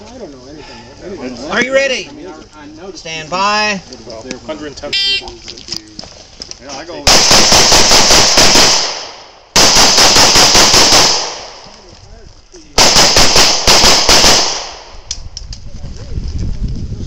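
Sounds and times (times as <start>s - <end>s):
pistol firing fast shots: 7.1s - 11.6s, 12.8s - 15.1s.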